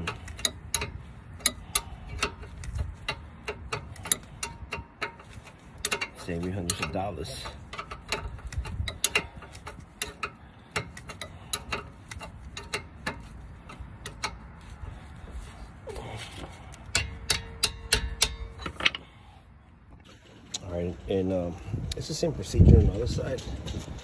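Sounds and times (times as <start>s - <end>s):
hand ratchet clicking: 0.0s - 15.7s, 16.4s - 19.0s.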